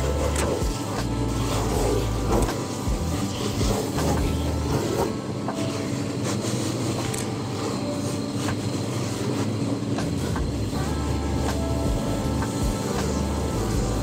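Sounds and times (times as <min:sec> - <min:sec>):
shoe rubbing on buffing wheel: 0:00.0 - 0:05.2
buffing machine running: 0:00.0 - 0:14.0.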